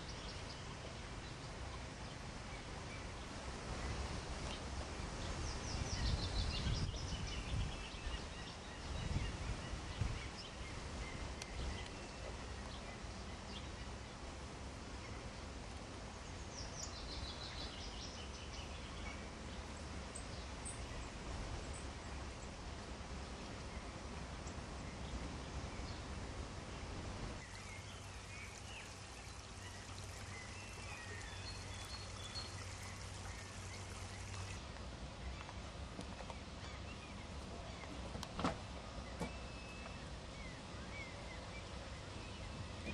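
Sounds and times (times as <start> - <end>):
small bird singing: 0.0 - 3.2, 5.2 - 14.0, 27.4 - 34.6, 39.0 - 42.8
faint chirps: 27.4 - 34.6.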